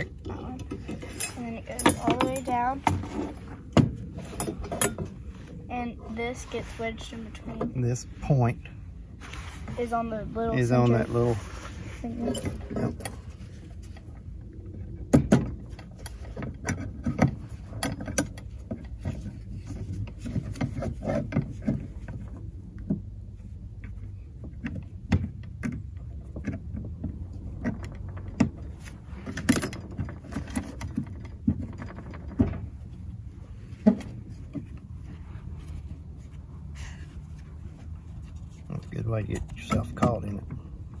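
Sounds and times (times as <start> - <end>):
metal trap and chain clinking: 0.9 - 2.6, 4.2 - 5.2, 12.2 - 13.2.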